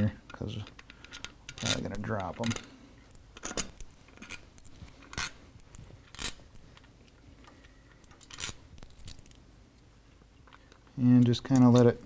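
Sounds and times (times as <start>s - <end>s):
metallic clinks of screws: 1.0s - 6.9s, 7.9s - 9.4s.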